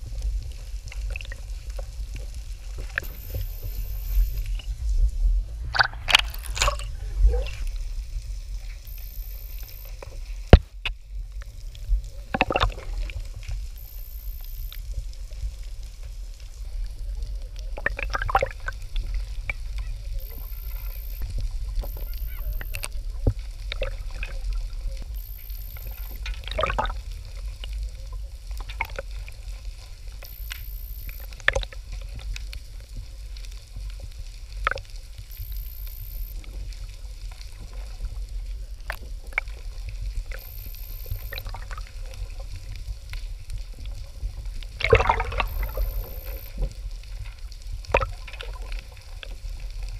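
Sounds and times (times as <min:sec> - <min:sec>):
low steady rumble: 0:00.0 - 0:49.9
bubbly exhalation bursts underwater: 0:04.5 - 0:08.2, 0:44.8 - 0:46.6.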